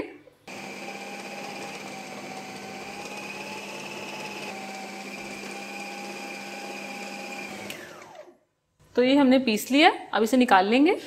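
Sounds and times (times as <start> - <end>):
food processor motor whining: 0.5 - 8.4.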